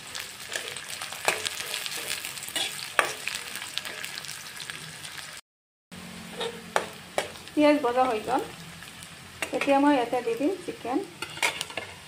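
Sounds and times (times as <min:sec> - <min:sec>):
onions sizzling in oil: 0:00.0 - 0:05.4, 0:06.0 - 0:12.0
metal spatula scraping pan: 0:00.4 - 0:04.2, 0:06.2 - 0:07.4, 0:11.0 - 0:12.0.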